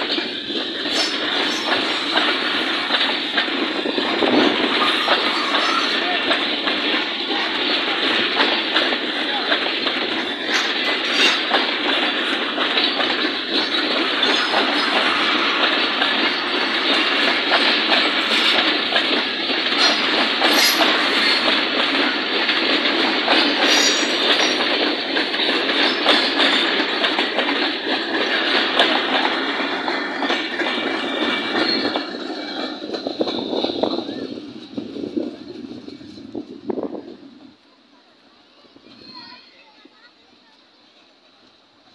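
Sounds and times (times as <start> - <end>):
wheels clattering over rail joints: 0.0 - 37.0
train coaches rumbling past: 0.0 - 41.9.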